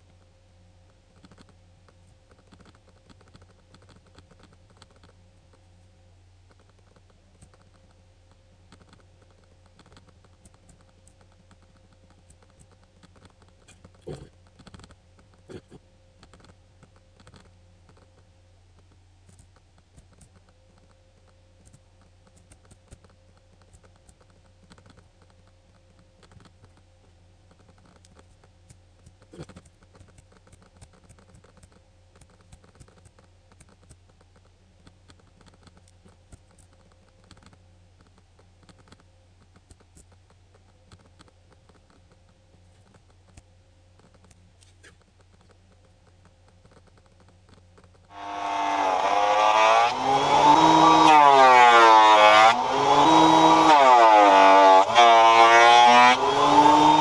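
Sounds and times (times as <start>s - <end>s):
steady low hum: 0.0s - 57.0s
mouse and keyboard clicking: 1.2s - 5.2s, 8.7s - 15.4s, 16.2s - 18.2s, 19.3s - 26.8s, 27.5s - 48.1s.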